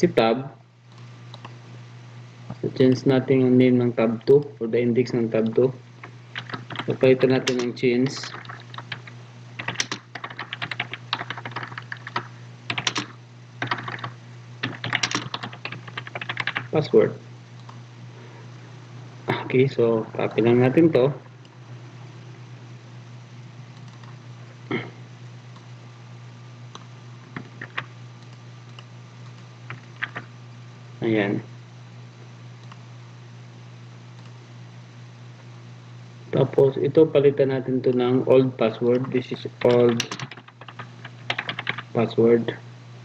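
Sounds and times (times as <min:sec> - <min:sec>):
steady low hum: 0:00.0 - 0:43.0
typing on computer keyboard: 0:06.4 - 0:16.7, 0:27.3 - 0:27.9, 0:29.3 - 0:30.3, 0:39.0 - 0:41.8.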